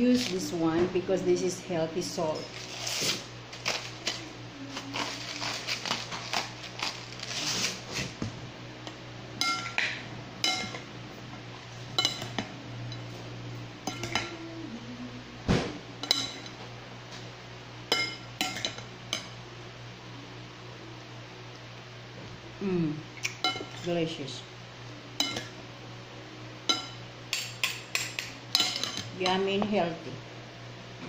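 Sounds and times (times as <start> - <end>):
metal servers clinking on glass bowl: 10.4 - 10.8, 12.0 - 13.0, 13.8 - 14.3, 26.7 - 29.6.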